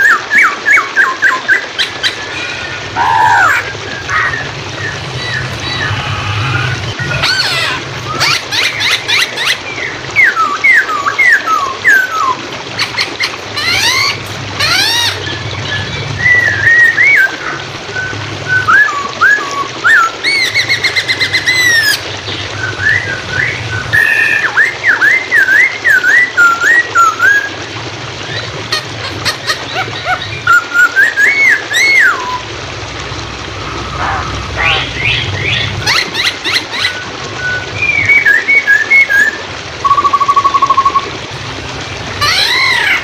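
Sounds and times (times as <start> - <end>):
flowing water: 0.0 - 43.0
bird whistling song: 7.1 - 12.4, 13.6 - 22.0, 22.6 - 27.6, 30.0 - 32.5, 34.0 - 41.1.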